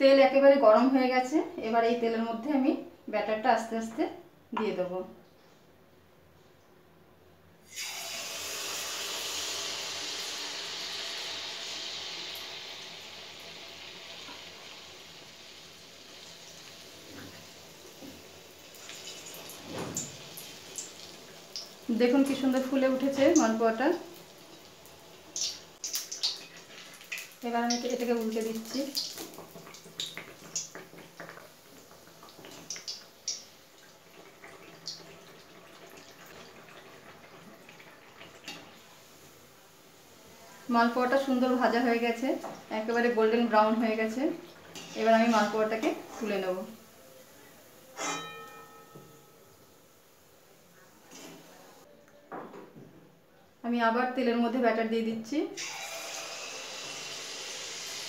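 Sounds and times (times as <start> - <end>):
batter sizzling in hot oil: 7.7 - 48.9, 55.6 - 58.0
oil popping and crackling: 16.3 - 38.8.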